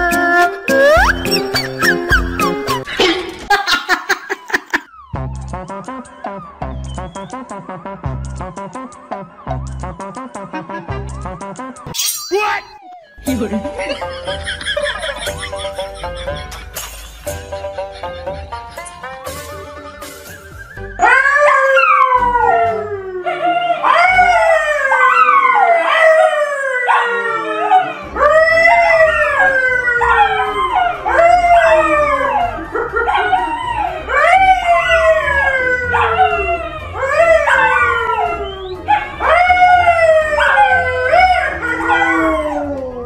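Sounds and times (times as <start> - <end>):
man howling: 20.9 - 38.6, 39.2 - 43.0.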